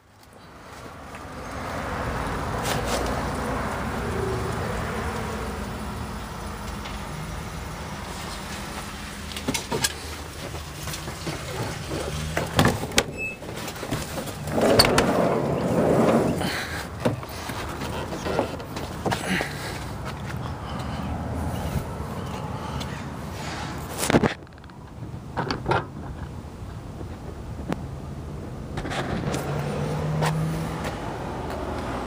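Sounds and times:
motor vehicle running: 0:00.1 - 0:24.7
rustle: 0:02.6 - 0:03.4.

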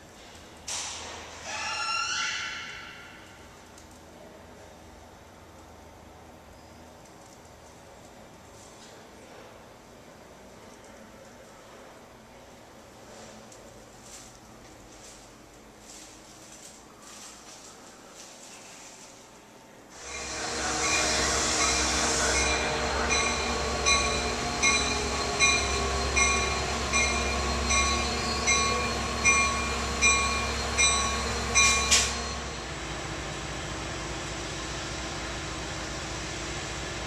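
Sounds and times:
hiss: 0:20.0 - 0:22.7
locomotive bell ringing: 0:20.0 - 0:33.0.

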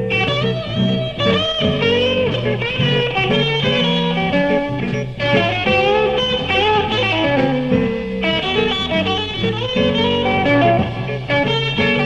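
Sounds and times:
electric guitar: 0:00.0 - 0:12.0
live blues band: 0:00.0 - 0:12.0.

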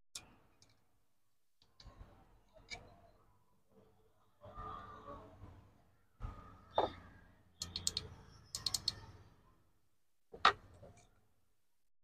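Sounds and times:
small plastic clicks: 0:00.2 - 0:00.8, 0:07.6 - 0:09.1.

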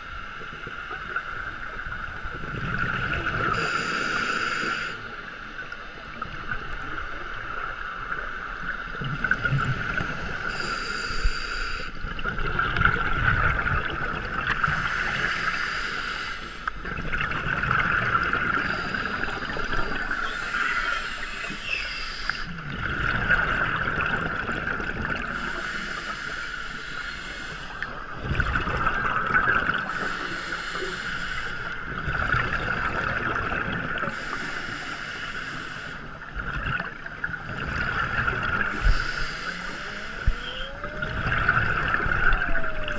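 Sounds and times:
constant regulator hiss: 0:00.0 - 0:12.3, 0:13.8 - 0:16.9, 0:18.3 - 0:22.8, 0:24.0 - 0:28.4, 0:29.7 - 0:32.9, 0:33.8 - 0:40.9
bubbles gushing underwater: 0:12.1 - 0:14.8, 0:16.8 - 0:20.2, 0:22.6 - 0:25.4, 0:27.9 - 0:30.0, 0:31.9 - 0:34.1, 0:36.2 - 0:38.8, 0:40.8 - 0:42.9.

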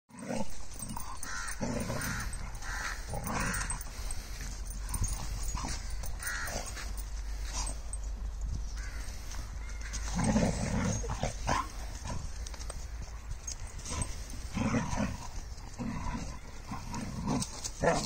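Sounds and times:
dog growling: 0:00.1 - 0:06.8, 0:10.1 - 0:12.2
dogs snarling: 0:00.1 - 0:08.0, 0:09.9 - 0:13.0, 0:13.6 - 0:18.0.

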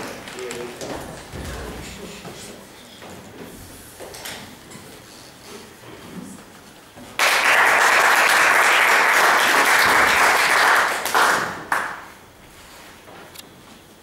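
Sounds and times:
audience applauding: 0:07.2 - 0:12.2.

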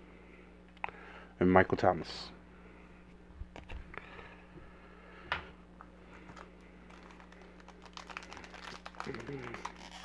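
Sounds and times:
steady low hum: 0:00.0 - 0:10.0
card pack clicks and rustles: 0:06.3 - 0:10.0.

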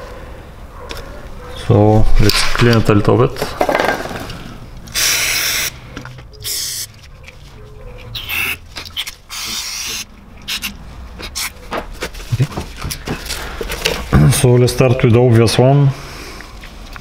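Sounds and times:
aerosol spray hissing: 0:05.0 - 0:05.7, 0:06.4 - 0:06.9, 0:09.3 - 0:10.7.

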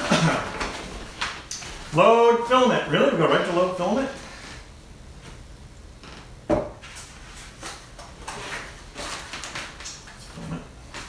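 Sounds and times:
paper rustling and scraping: 0:06.8 - 0:09.8.

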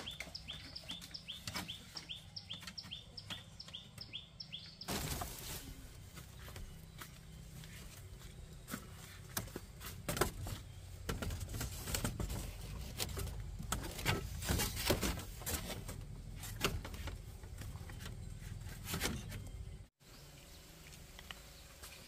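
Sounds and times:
bamboo panel knocking and rattling: 0:08.8 - 0:19.6.

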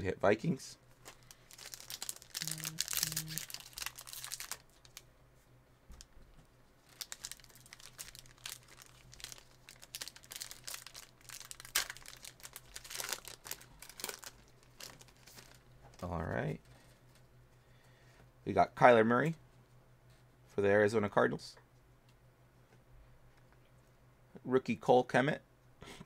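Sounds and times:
faint low hum: 0:00.0 - 0:26.0
foil wrappers crinkling and tearing: 0:01.0 - 0:05.0, 0:06.8 - 0:16.1.

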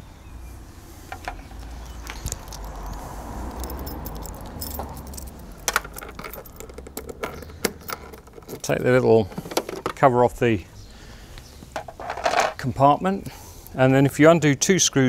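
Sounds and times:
small hard objects clinking: 0:01.1 - 0:10.0, 0:11.8 - 0:12.6.

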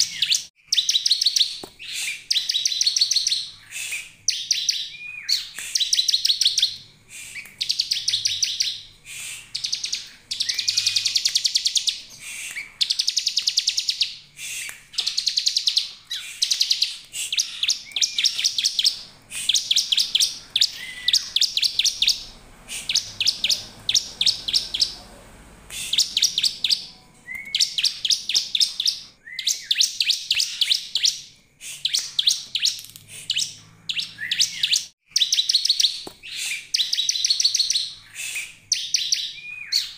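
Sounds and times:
bird calling rapid high notes: 0:00.0 - 0:31.0.

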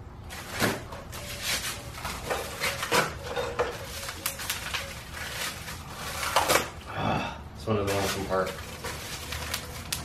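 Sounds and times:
plastic wrap crinkling: 0:02.0 - 0:06.7, 0:07.8 - 0:10.0.

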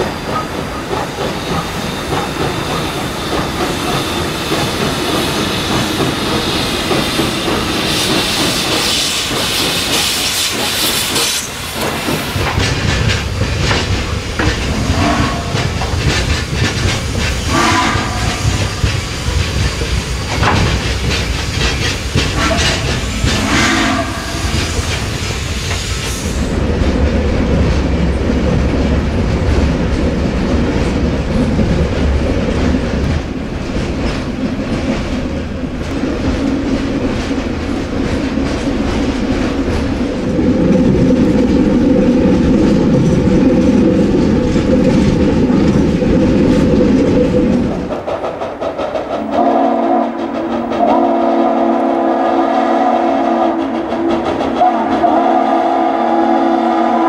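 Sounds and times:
freight cars rattling on rails: 0:00.0 - 0:52.2, 0:53.0 - 0:55.4
steam locomotive whistle: 0:14.7 - 0:15.8, 0:17.5 - 0:18.8, 0:22.3 - 0:25.2, 0:49.3 - 0:53.8, 0:54.6 - 0:57.0.

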